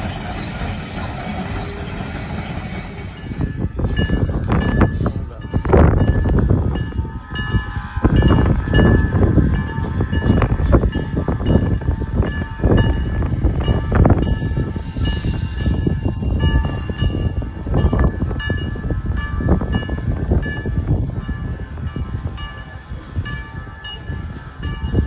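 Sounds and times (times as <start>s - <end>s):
high steam hiss: 0.0s - 3.7s, 14.4s - 16.0s
steam locomotive chuffing: 0.0s - 5.3s, 6.1s - 25.0s
locomotive bell ringing: 0.0s - 25.0s.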